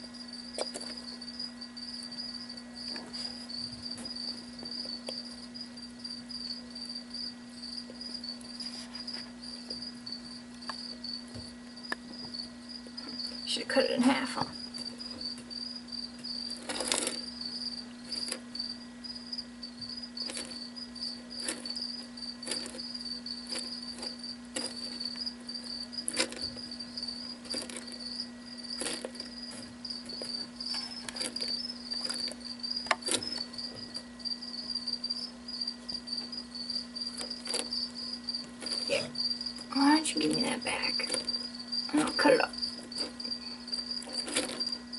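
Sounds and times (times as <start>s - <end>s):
cricket trilling: 0.0s - 44.9s
steady low hum: 0.0s - 44.9s
clicks and ticks on gravel: 16.2s - 17.4s, 18.0s - 18.6s, 20.2s - 20.7s, 21.4s - 34.1s, 37.1s - 44.9s.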